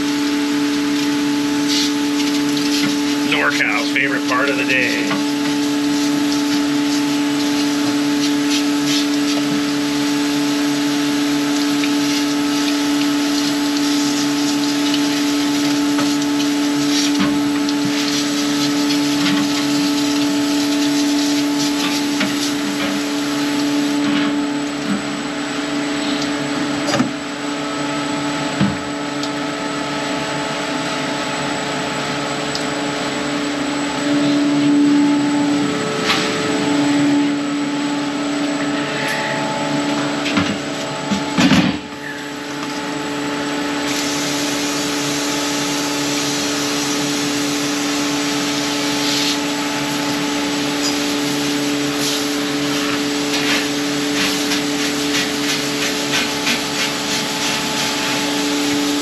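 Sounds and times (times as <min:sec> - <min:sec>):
hissing water spray: 0:00.0 - 0:03.8, 0:05.3 - 0:24.0, 0:43.8 - 0:59.0
pump humming: 0:00.0 - 0:59.0.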